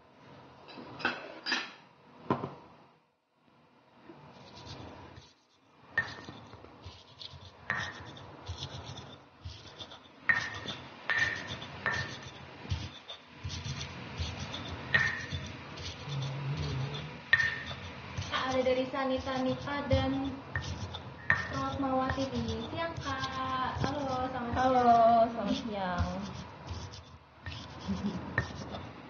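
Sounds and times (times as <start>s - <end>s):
stone pestle grinding in mortar: 4.4s - 29.0s
stone-on-stone knocks: 10.3s - 12.2s, 14.9s - 15.5s, 17.3s - 17.8s, 19.9s - 22.2s.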